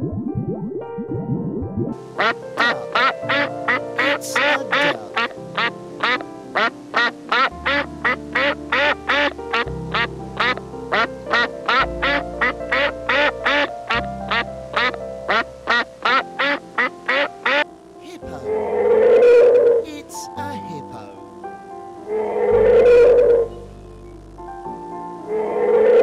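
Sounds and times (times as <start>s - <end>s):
background music: 0.0s - 26.0s
duck quacking: 2.2s - 18.5s.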